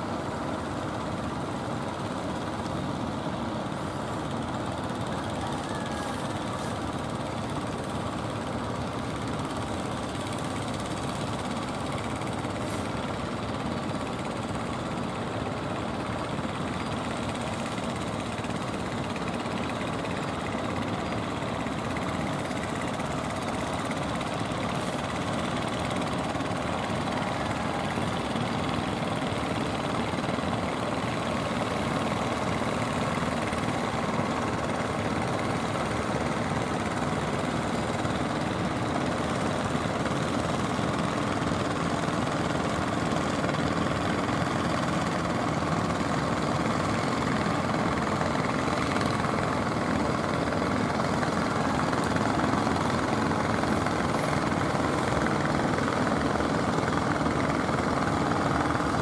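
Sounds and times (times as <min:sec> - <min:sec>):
boat engine running: 0:00.0 - 0:59.0.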